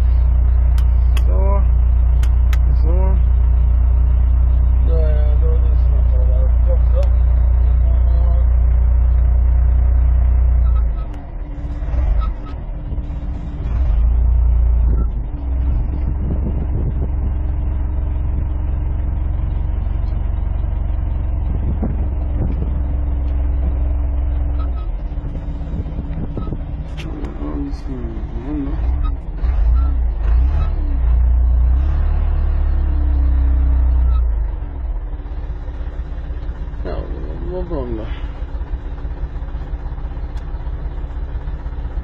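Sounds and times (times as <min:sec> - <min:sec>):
steady whine: 0:00.0 - 0:29.9
diesel engine droning: 0:00.0 - 0:42.0.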